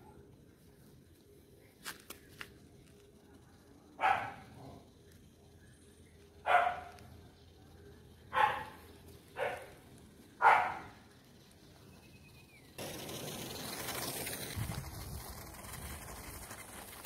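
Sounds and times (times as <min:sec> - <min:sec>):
dog barking: 0:04.0 - 0:04.8, 0:06.4 - 0:07.0, 0:08.3 - 0:08.8, 0:09.4 - 0:09.7, 0:10.4 - 0:11.0.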